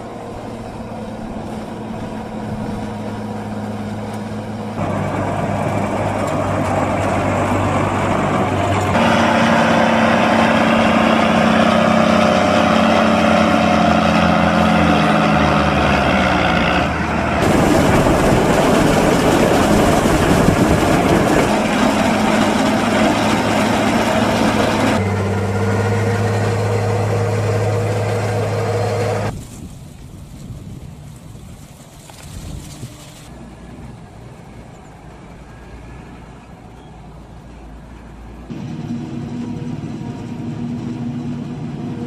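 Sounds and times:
tractor diesel engine: 0:00.0 - 0:29.4, 0:31.7 - 0:42.0
wheel loader engine: 0:00.0 - 0:29.4, 0:31.8 - 0:42.0
forage wagon unloading silage: 0:00.0 - 0:33.9.

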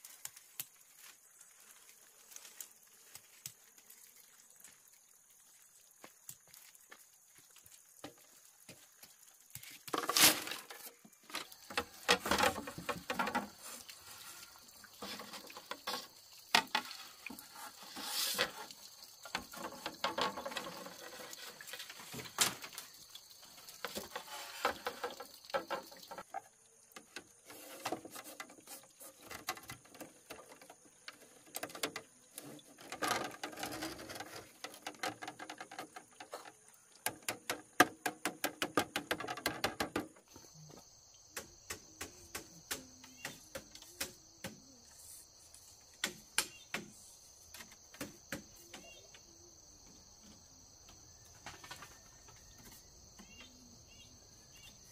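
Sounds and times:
hand work clicking and knocking: 0:37.0 - 0:40.2.

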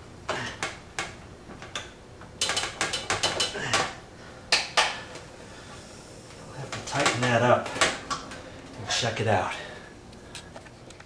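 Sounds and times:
tools clicking on sheet metal: 0:01.8 - 0:03.7.

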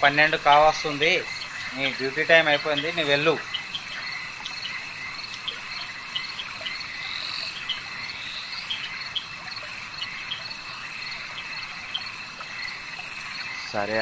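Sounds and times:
crickets trilling: 0:00.0 - 0:14.0
frogs calling: 0:00.0 - 0:14.0.

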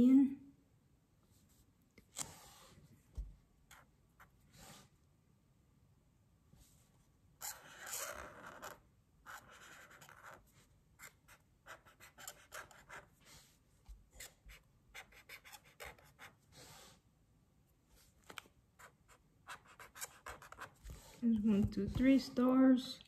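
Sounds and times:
marker scratching on paper: 0:03.7 - 0:04.4, 0:07.4 - 0:13.3, 0:14.2 - 0:16.4, 0:18.8 - 0:21.2.

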